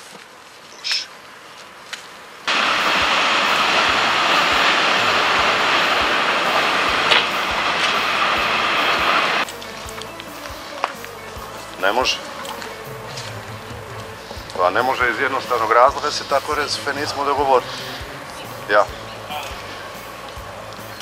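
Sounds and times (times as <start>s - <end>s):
train passing on rails: 2.5s - 9.5s, 11.8s - 21.0s
wheels clacking over rail joints: 2.5s - 9.5s.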